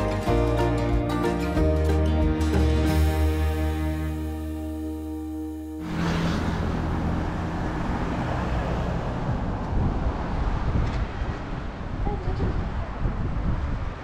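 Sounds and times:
cars passing with low rumble: 0:03.7 - 0:14.0.

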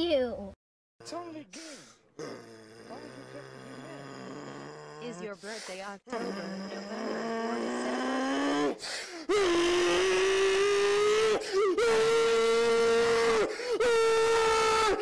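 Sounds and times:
man screaming: 0:09.3 - 0:15.0.

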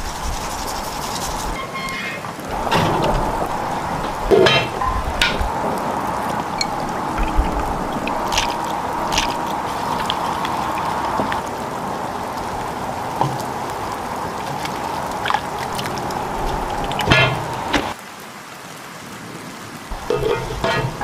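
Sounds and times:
whisking in a bowl: 0:00.0 - 0:01.6
liquid sloshing into a pot: 0:20.0 - 0:21.0.

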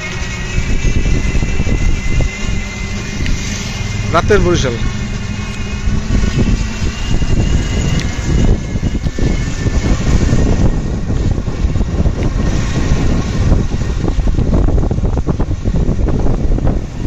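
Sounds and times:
faint high whine: 0:00.0 - 0:15.2
moving vehicle noise: 0:00.0 - 0:17.0
wind rumbling on microphone: 0:00.0 - 0:17.0.

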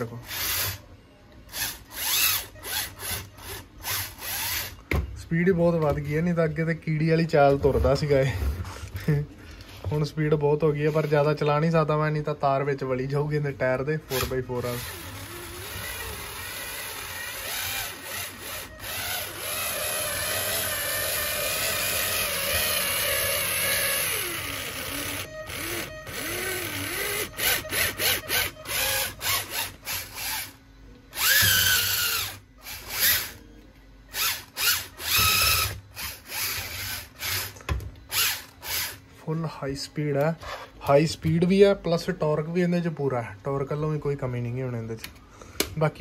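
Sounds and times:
small electric motor whining: 0:00.2 - 0:00.8, 0:01.5 - 0:04.8, 0:14.1 - 0:33.4, 0:34.1 - 0:39.0.

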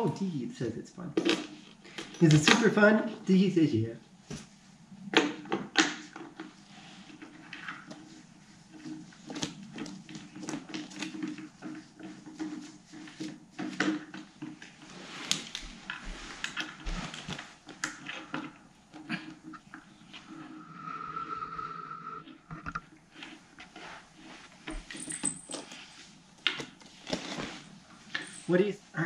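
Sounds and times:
cat rummaging among paper: 0:26.8 - 0:28.5.

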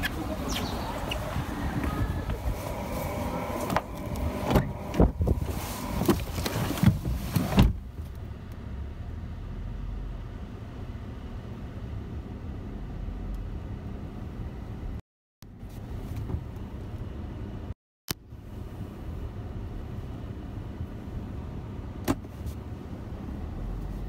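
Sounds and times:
car door opening: 0:00.0 - 0:07.9
low hum inside car cabin: 0:00.0 - 0:24.0
person climbing into car seat: 0:01.2 - 0:08.0.

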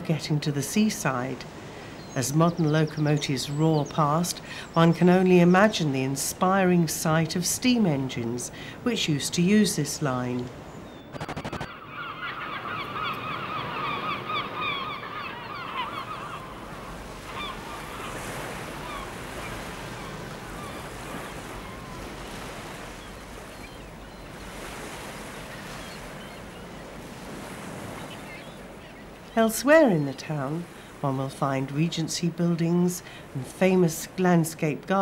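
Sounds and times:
flock of birds calling: 0:11.0 - 0:24.6.

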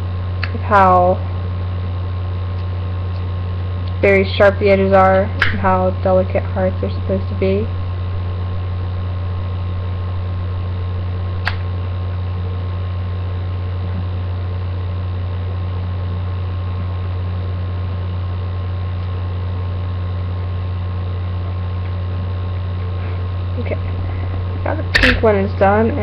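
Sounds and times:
low electrical hum with hiss: 0:00.0 - 0:26.0
sharp click: 0:05.4 - 0:05.6, 0:11.4 - 0:11.7, 0:24.9 - 0:25.3.

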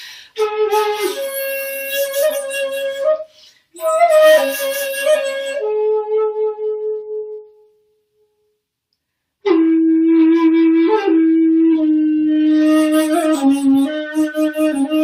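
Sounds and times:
breath noise in flute tone: 0:00.0 - 0:01.2, 0:03.2 - 0:03.8
bamboo flute solo: 0:00.0 - 0:07.8, 0:09.4 - 0:15.0.

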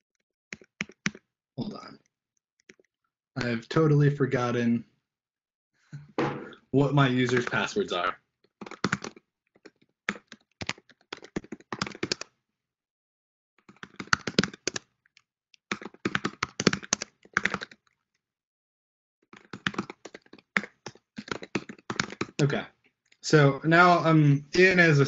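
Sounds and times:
typing on computer keyboard: 0:00.0 - 0:01.2, 0:08.6 - 0:12.3, 0:13.7 - 0:14.9, 0:15.7 - 0:17.9, 0:19.4 - 0:22.4.

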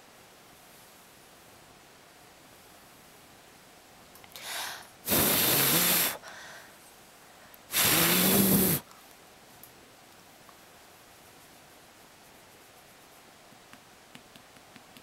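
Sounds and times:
person blowing breath: 0:07.7 - 0:08.8
breath intake: 0:07.7 - 0:08.9.

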